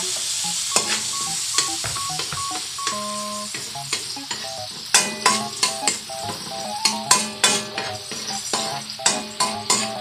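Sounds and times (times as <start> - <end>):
background music with held notes: 0.0 - 10.0
food sizzling in oil: 0.0 - 10.0
sharp percussion hits: 0.7 - 10.0
spatula scraping a wok: 7.2 - 10.0.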